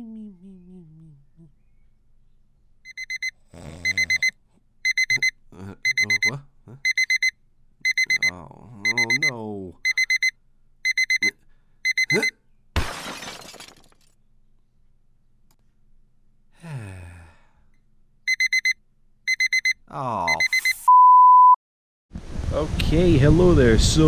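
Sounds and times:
steady single-pitch bleep: 2.9 - 4.3, 4.9 - 11.3, 11.9 - 12.3, 18.3 - 21.6
electronic alarm beeping: 2.9 - 12.3, 18.3 - 21.6.

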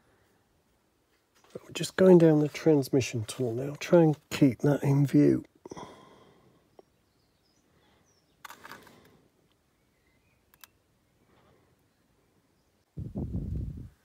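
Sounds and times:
faint rustle: 0.1 - 3.6, 7.9 - 10.0.

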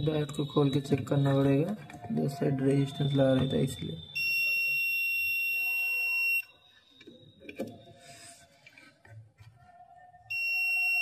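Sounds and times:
multimeter high-pitched beep: 0.0 - 1.6, 2.8 - 7.9, 10.3 - 11.0.

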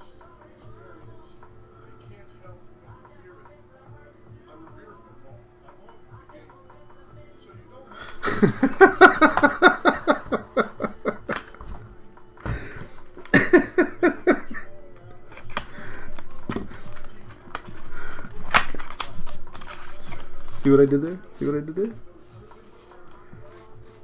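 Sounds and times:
man laughing: 8.0 - 11.4, 13.2 - 14.8
cardboard pack rustling: 15.2 - 24.0.

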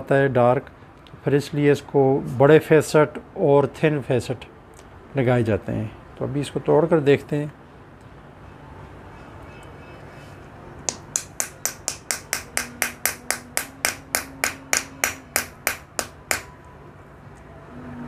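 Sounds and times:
small hammer tapping stone: 10.9 - 16.5.

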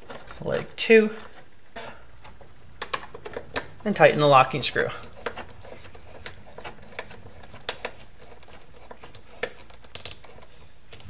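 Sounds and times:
screwdriver clicks and scrapes: 5.0 - 11.0.

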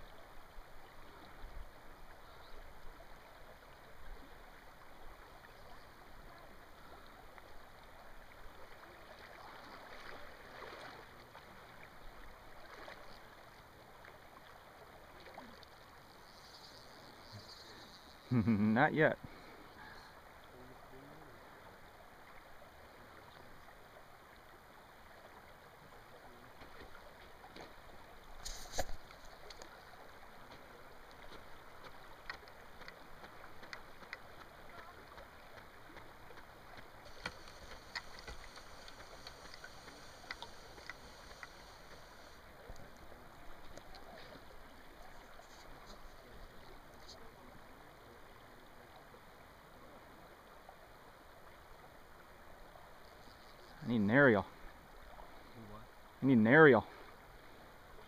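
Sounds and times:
flowing river water: 0.0 - 58.0
small clicks: 37.1 - 42.8.

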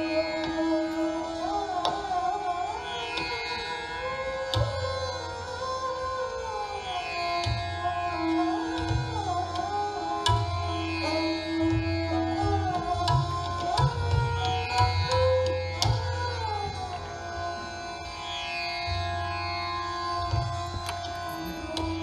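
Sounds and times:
tabla drumming: 0.0 - 2.2, 4.5 - 5.3, 7.4 - 17.6, 20.1 - 22.0
bowed string melody: 0.0 - 22.0
tanpura drone: 0.0 - 22.0.

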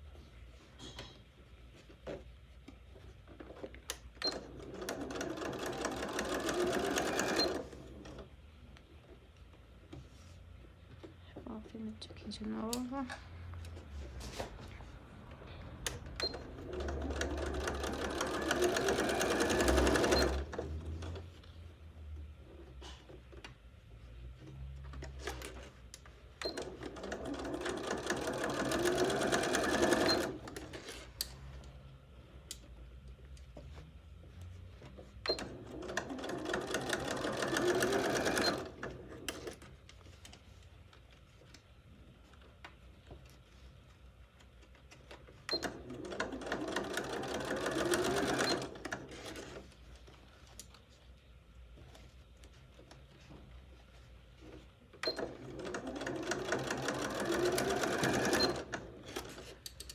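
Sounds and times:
sewing machine stitching: 4.2 - 8.2, 16.1 - 21.3, 26.4 - 30.8, 35.2 - 39.6, 45.5 - 49.6, 55.0 - 59.6.

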